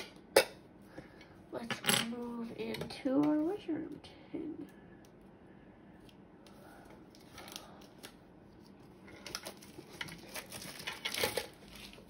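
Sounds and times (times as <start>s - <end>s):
plastic shrink-wrap crinkling: 7.1s - 12.0s.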